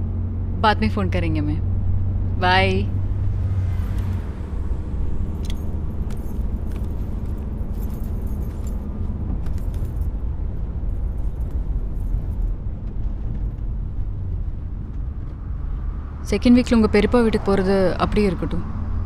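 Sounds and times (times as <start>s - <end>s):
car cabin rumble: 0.0s - 19.0s
light clinks and ticks: 5.2s - 10.2s, 10.8s - 13.8s.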